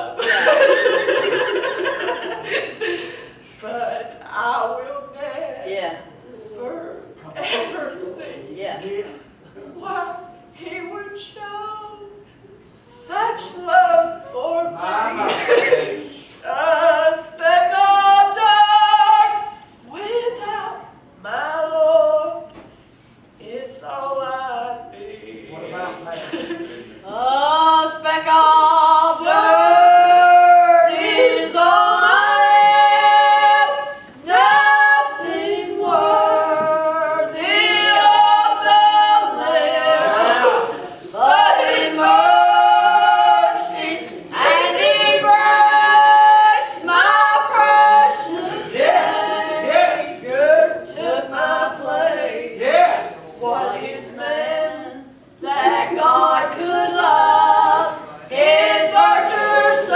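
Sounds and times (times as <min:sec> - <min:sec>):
women singing unaccompanied: 0:12.9 - 0:22.6, 0:27.0 - 0:59.9.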